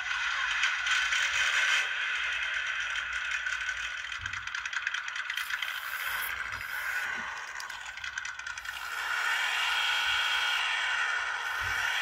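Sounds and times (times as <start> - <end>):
simulated engine from tiny speaker: 0.0 - 12.0.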